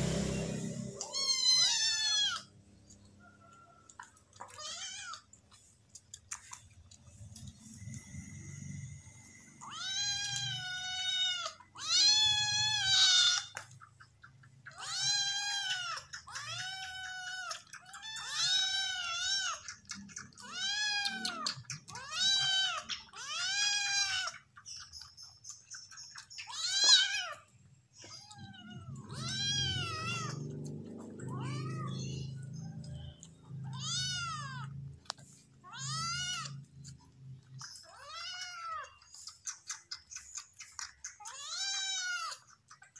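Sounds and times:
kittens meowing: 0:00.1 - 0:02.5, 0:09.6 - 0:13.8, 0:14.6 - 0:24.6, 0:26.3 - 0:39.3, 0:41.0 - 0:42.6.

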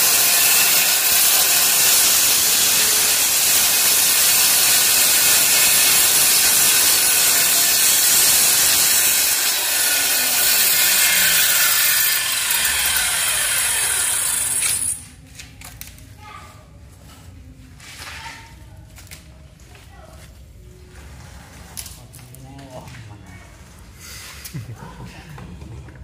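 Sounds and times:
circular saw cutting wood: 0:00.0 - 0:15.0.

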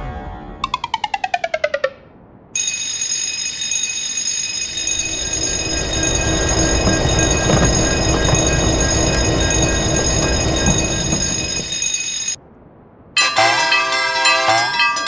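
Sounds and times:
steady high ringing: 0:02.6 - 0:12.4, 0:13.2 - 0:15.0
train rumble: 0:04.6 - 0:12.4.

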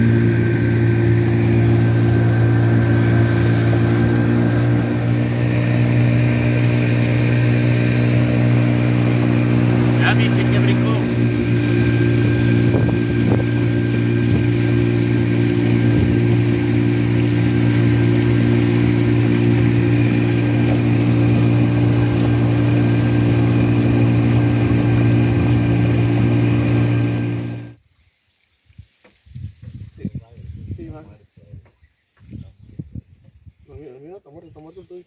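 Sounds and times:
outboard motor droning: 0:00.0 - 0:27.8
water rushing past hull: 0:00.0 - 0:27.8.

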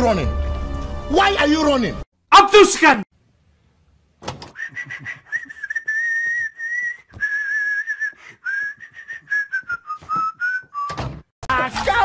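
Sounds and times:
person whistling: 0:04.5 - 0:11.0.

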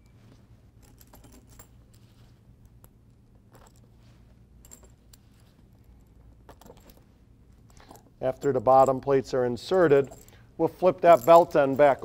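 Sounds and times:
metallic clicks and clinks: 0:00.8 - 0:02.1, 0:04.6 - 0:12.0.

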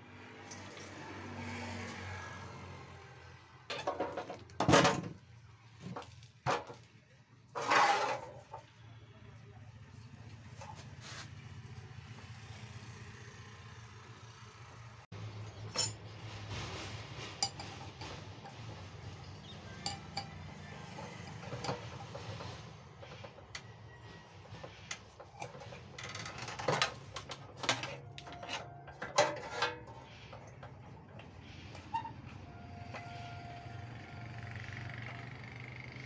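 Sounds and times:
metal spanner clinking on saw: 0:19.1 - 0:22.6.

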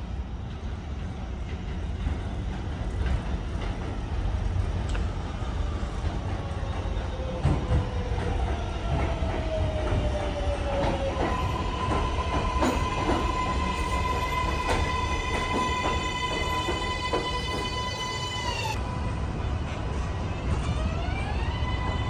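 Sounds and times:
train wheels rumbling on rail: 0:00.0 - 0:22.0
train propulsion whine: 0:04.9 - 0:22.0.

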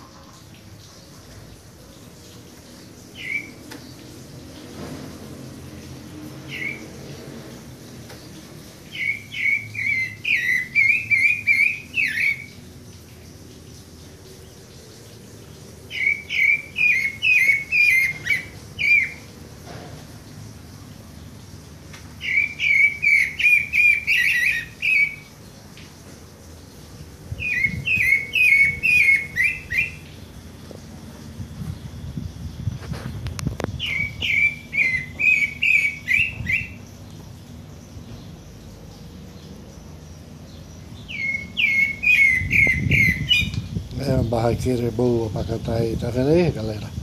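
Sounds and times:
thrush singing whistled notes: 0:03.0 - 0:04.0, 0:06.5 - 0:07.0, 0:08.8 - 0:12.7, 0:15.9 - 0:19.3, 0:22.2 - 0:25.4, 0:27.3 - 0:30.3, 0:33.7 - 0:37.0, 0:40.5 - 0:46.4.

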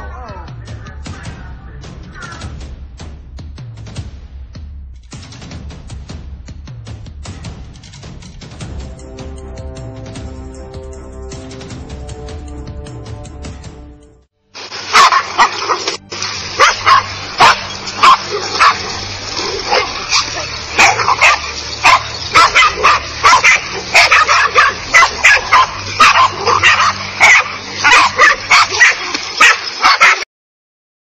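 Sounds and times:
dogs barking frantically: 0:14.8 - 0:30.3.

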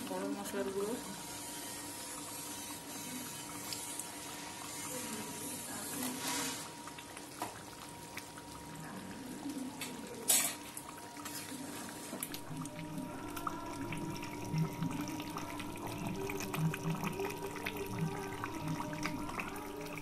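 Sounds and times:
curry bubbling in a pan: 0:00.0 - 0:20.0.

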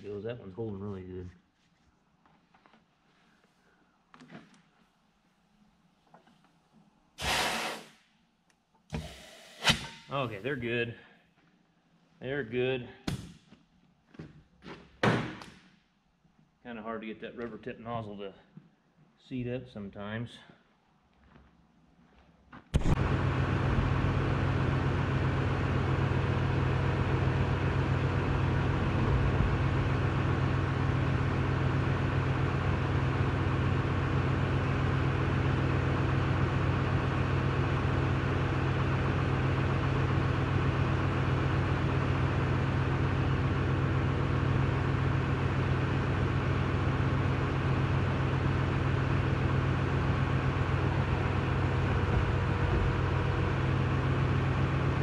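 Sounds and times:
machine drone and hum: 0:22.8 - 0:55.0.

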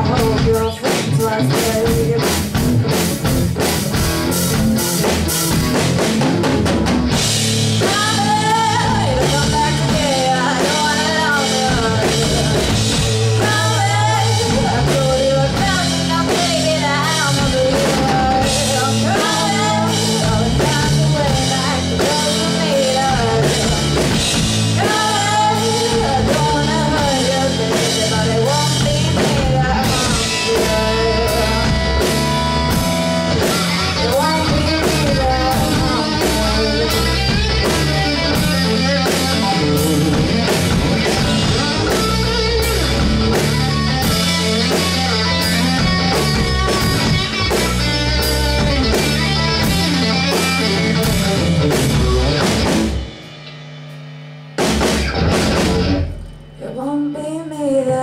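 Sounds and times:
person singing: 0:00.0 - 0:02.6, 0:07.8 - 0:24.2, 0:24.8 - 0:32.8, 0:33.5 - 0:47.5, 0:56.6 - 0:58.0
drum kit beat: 0:00.0 - 0:58.0
electric guitar: 0:00.0 - 0:58.0.

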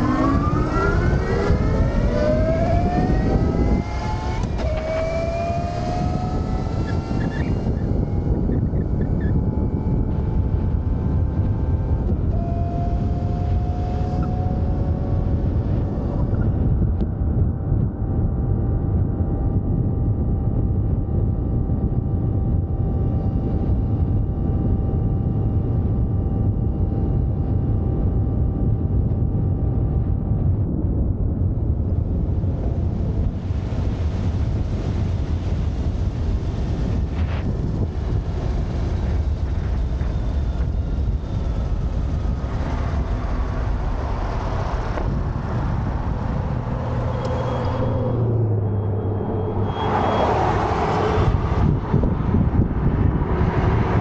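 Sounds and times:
electric motor whine: 0:00.0 - 0:18.6, 0:31.9 - 0:52.6
wind rushing over microphone: 0:00.0 - 0:54.0.

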